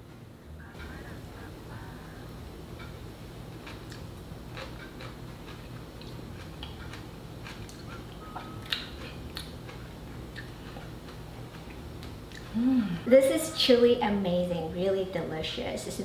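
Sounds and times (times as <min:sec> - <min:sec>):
low steady hum: 0:00.0 - 0:16.0
crunchy chewing: 0:03.5 - 0:12.6.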